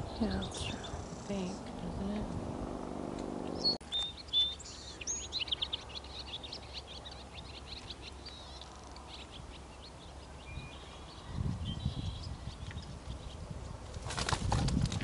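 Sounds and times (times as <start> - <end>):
small birds chirping: 0.0 - 2.5, 3.4 - 14.0
low muffled rumble: 0.0 - 3.8.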